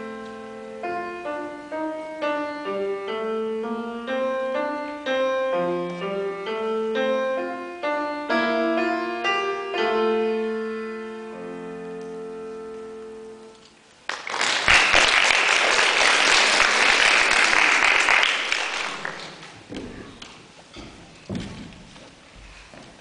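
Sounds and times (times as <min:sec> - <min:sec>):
grand piano playing: 0:00.0 - 0:14.1
audience applause: 0:14.1 - 0:19.6.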